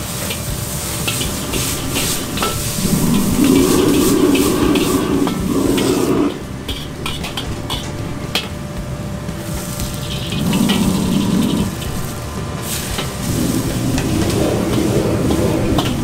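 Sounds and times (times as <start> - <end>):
gas burner roaring: 0.0 - 16.0
vegetables sizzling: 0.0 - 16.0
metal ladle scraping and clinking: 0.3 - 8.5, 9.6 - 16.0.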